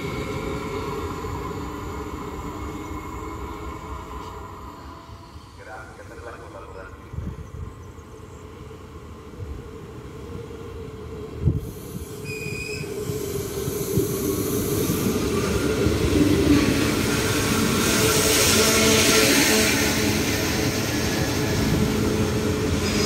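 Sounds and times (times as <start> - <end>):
train wheels rumbling on rails: 0.0 - 23.0
short high squeal: 12.2 - 13.0.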